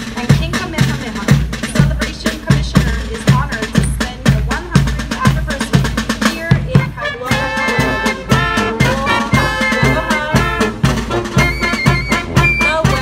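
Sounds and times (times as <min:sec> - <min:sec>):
bass drum beat: 0:00.0 - 0:13.0
brass instruments holding chords: 0:06.3 - 0:13.0.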